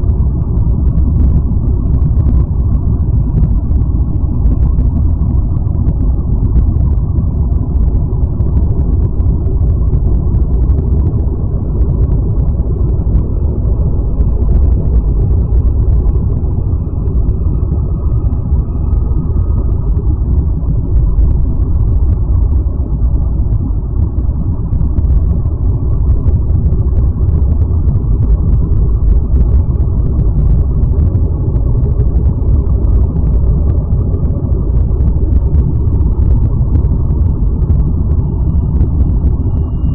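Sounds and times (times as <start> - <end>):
deep ambient drone: 0.0 - 39.9.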